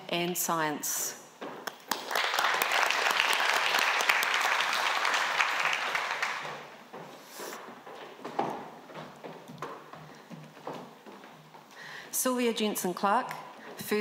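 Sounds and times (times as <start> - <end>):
audience applauding: 1.7 - 6.7.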